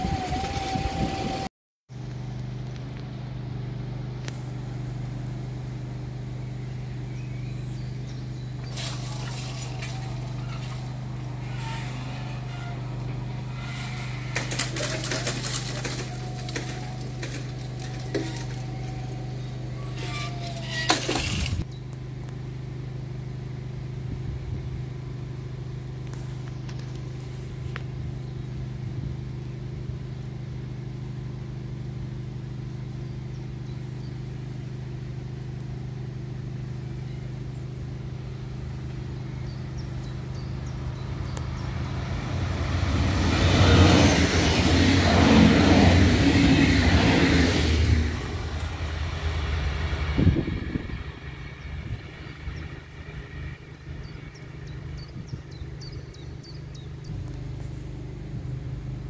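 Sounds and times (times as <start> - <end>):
vehicle engine idling: 0.0 - 59.0
light clinks and ticks: 8.6 - 12.2, 13.7 - 22.0.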